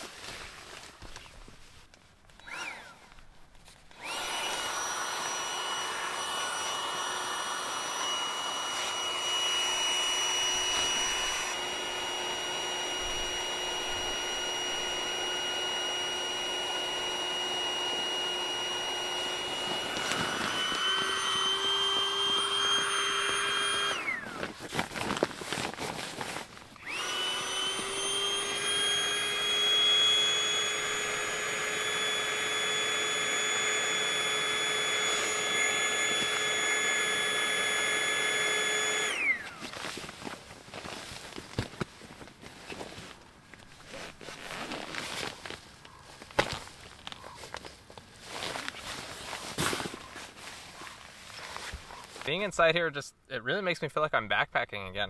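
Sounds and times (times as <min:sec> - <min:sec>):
electric air pump whining: 0:02.4 - 0:03.2, 0:03.8 - 0:52.4
handling noise: 0:19.0 - 0:26.9.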